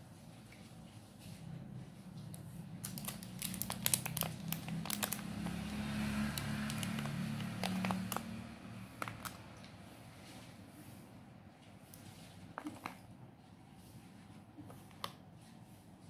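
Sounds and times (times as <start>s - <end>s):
plastic tray and wrapper crinkling: 2.8s - 5.7s, 6.3s - 9.7s.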